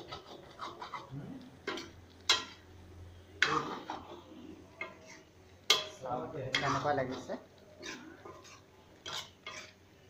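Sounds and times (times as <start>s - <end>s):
metal spoon clinking on pot: 5.7s - 6.8s.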